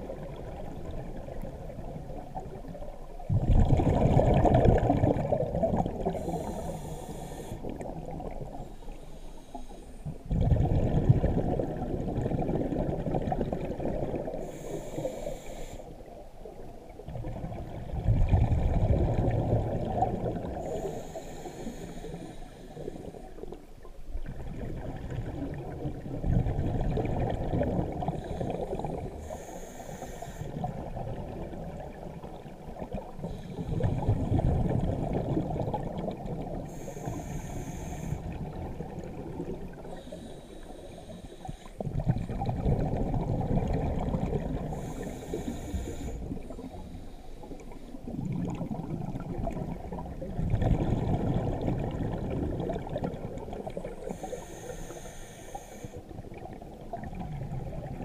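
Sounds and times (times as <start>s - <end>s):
exhaled bubbles rushing: 0.0s - 6.6s, 10.2s - 14.5s, 16.9s - 20.6s, 24.1s - 29.2s, 30.6s - 36.7s, 38.2s - 40.0s, 41.8s - 45.4s, 47.5s - 54.2s, 56.1s - 58.0s
regulator inhalation hiss: 6.1s - 7.7s, 14.4s - 16.0s, 20.6s - 23.4s, 28.2s - 30.6s, 36.7s - 38.3s, 39.9s - 41.8s, 44.7s - 48.0s, 54.0s - 56.1s.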